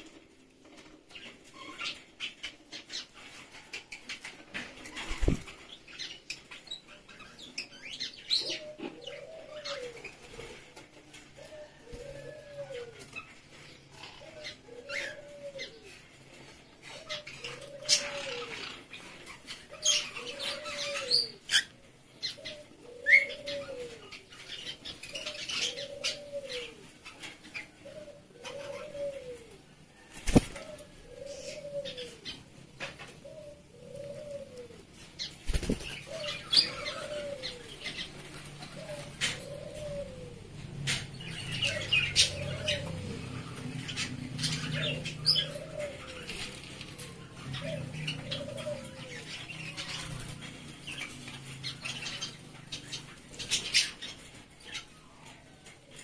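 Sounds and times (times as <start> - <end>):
budgies chattering and chirping: 0.0 - 10.9, 33.1 - 40.1, 40.8 - 56.0
wings fluttering: 4.5 - 5.6, 30.1 - 30.9, 35.3 - 37.3.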